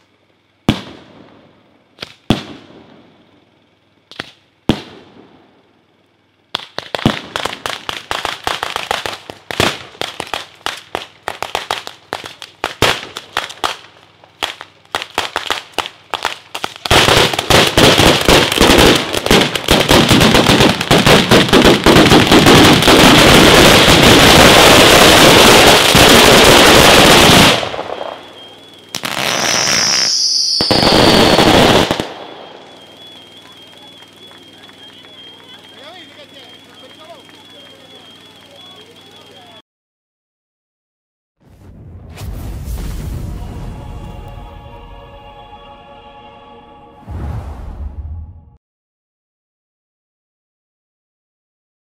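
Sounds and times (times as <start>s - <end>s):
firecracker bangs: 0.6s - 1.3s, 6.6s - 38.0s
falling whistle: 28.0s - 39.6s.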